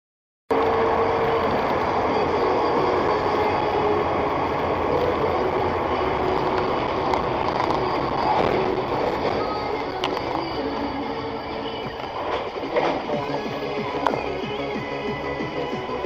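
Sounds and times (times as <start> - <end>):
engine and wind drone: 0.5 - 16.0.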